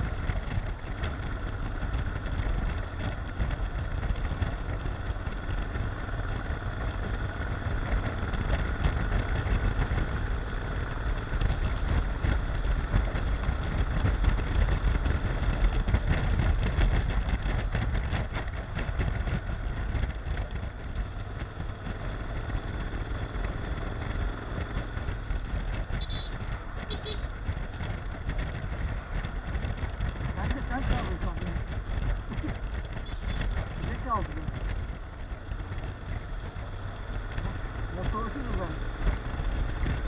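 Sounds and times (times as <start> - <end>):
motorcycle engine running: 0.0 - 40.0
wind buffeting microphone: 10.9 - 40.0.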